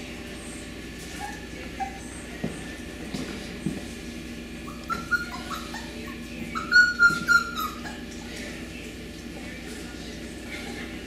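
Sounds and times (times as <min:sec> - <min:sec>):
puppies whining: 0:00.4 - 0:02.8, 0:04.4 - 0:08.8.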